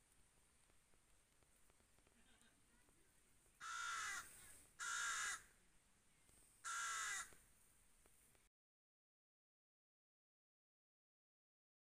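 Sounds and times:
crow cawing: 3.6 - 5.5, 6.6 - 7.4.

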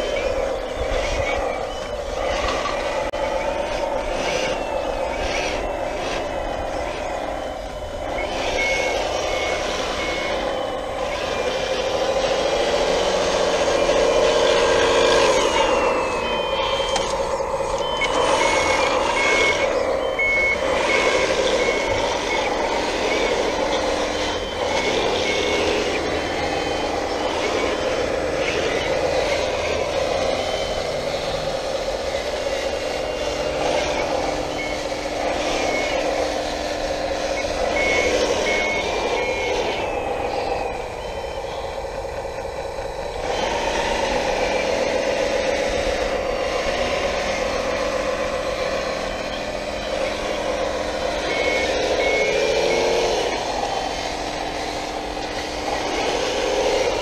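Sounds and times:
high electronic reversing beeps: 0.0 - 57.0
motors and hydraulic pumps whining: 0.0 - 57.0.

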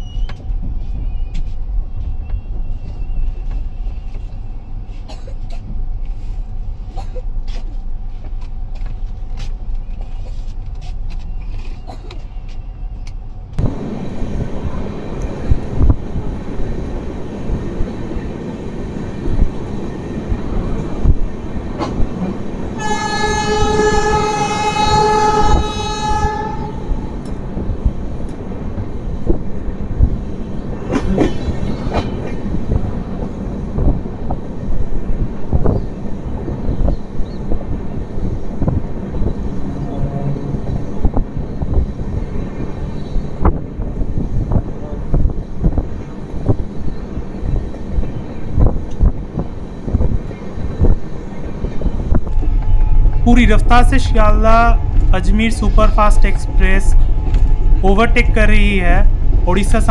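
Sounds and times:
rushing air: 13.6 - 59.9
train wheels clattering: 17.5 - 39.6
locomotive horn blast: 22.8 - 27.2, 39.6 - 41.1, 44.7 - 45.2.

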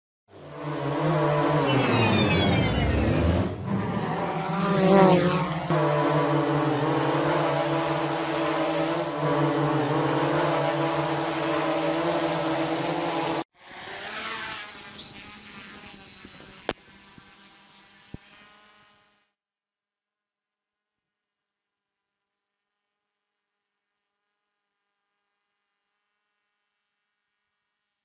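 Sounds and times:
drone propellers humming: 0.3 - 13.4.

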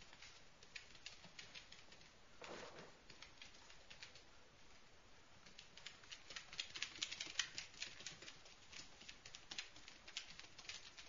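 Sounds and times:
puppies' claws clicking on floor: 0.0 - 11.0.

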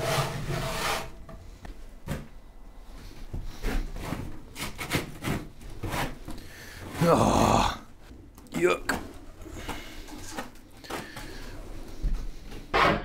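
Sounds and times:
hand scraper scraping wooden floor: 0.0 - 1.2, 3.5 - 7.3.

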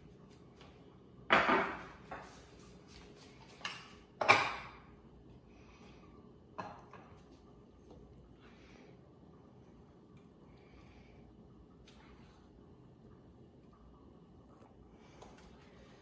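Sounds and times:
ceramic plate on counter: 1.3 - 2.5.

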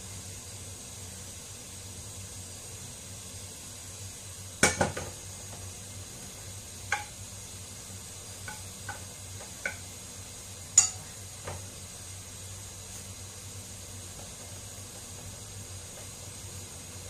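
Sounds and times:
faint steady hiss: 0.0 - 17.0
chopsticks knocking on frying pan: 4.6 - 5.2, 6.9 - 7.2, 8.4 - 9.9, 10.8 - 11.6.

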